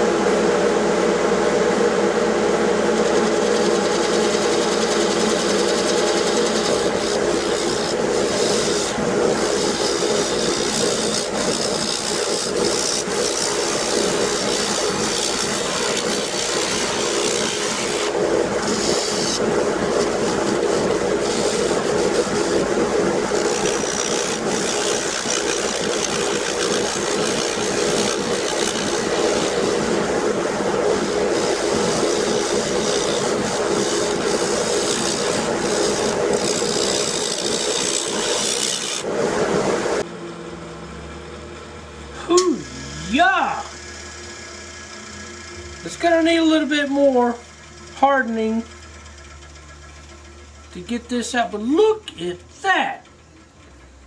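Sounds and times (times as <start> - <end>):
wood lathe humming: 0.0 - 54.0
turning tool shaving hiss: 1.7 - 39.1, 42.0 - 52.4
gouge shearing wood: 2.8 - 39.1, 42.3 - 49.4.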